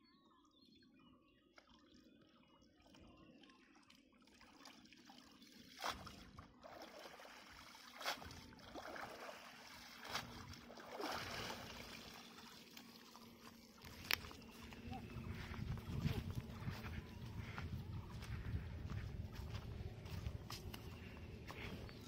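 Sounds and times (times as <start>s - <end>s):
water sloshing and dripping: 2.6s - 21.9s
loud splashes: 6.8s - 12.2s.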